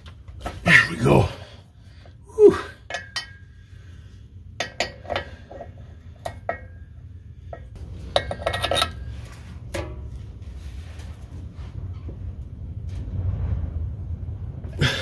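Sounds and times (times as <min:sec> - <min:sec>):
wrench clinking on metal bolts: 0:07.5 - 0:09.1.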